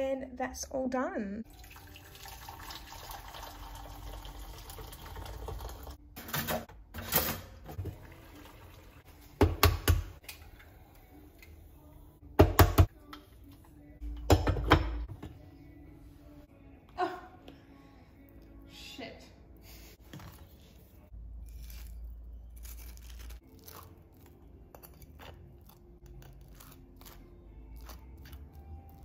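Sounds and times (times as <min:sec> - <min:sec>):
water pouring into saucepan: 0:01.5 - 0:06.0, 0:07.8 - 0:09.0.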